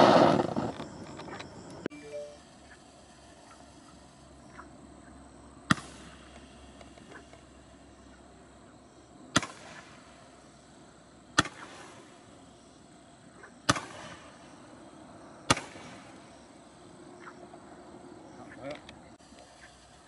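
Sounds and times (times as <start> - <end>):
roman candle firework pops: 5.7 - 7.1, 9.3 - 10.0, 11.4 - 12.0, 13.7 - 14.3, 15.5 - 16.1.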